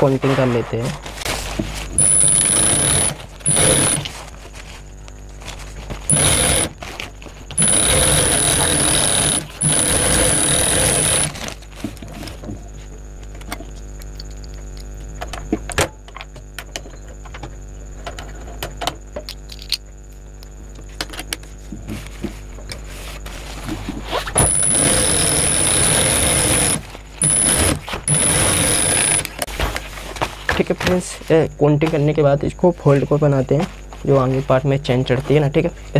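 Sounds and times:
sewing machine stitching: 2.0 - 4.2, 6.1 - 11.6, 24.4 - 29.4.

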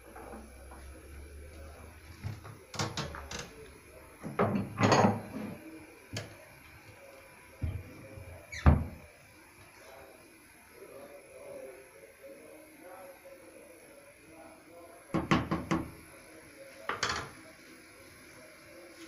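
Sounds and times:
kitchen knocks and clatters: 2.2 - 3.5, 4.2 - 6.3, 15.2 - 15.9, 16.9 - 17.4.

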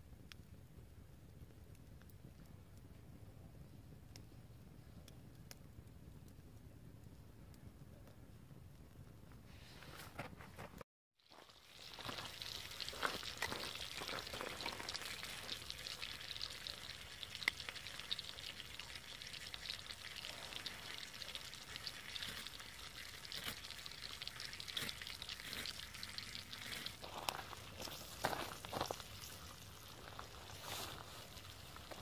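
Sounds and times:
campfire pops and crackles: 0.0 - 3.0, 11.2 - 32.0
food sizzling in a pan: 11.2 - 32.0.

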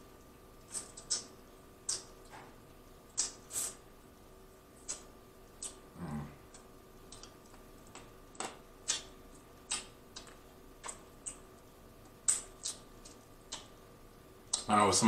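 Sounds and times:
wet lip smacks and sucking clicks: 0.6 - 2.2, 3.1 - 3.8, 4.8 - 5.8, 6.5 - 13.8.

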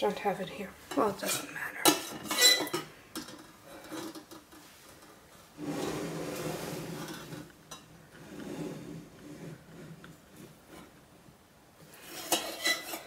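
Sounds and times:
stirring and handling sounds: 11.8 - 13.0.

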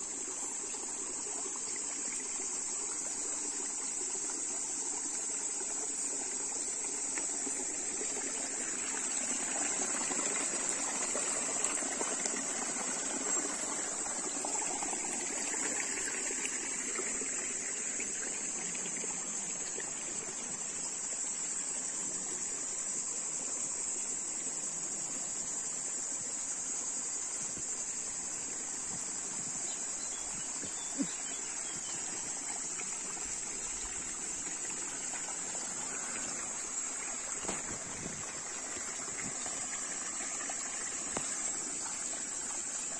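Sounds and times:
stream trickling over rocks: 0.0 - 42.9.

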